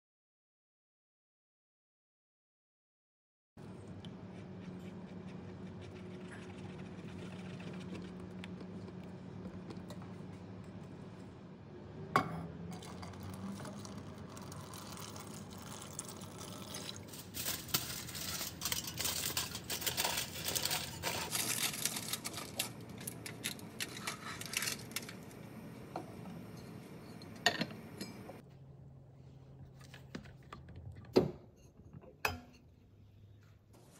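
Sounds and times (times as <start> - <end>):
aluminium foil crinkling: 14.6 - 25.5.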